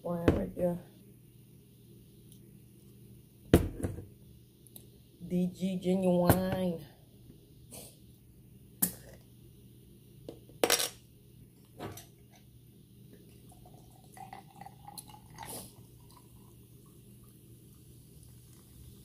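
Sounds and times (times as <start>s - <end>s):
soda pouring over ice: 13.3s - 19.0s.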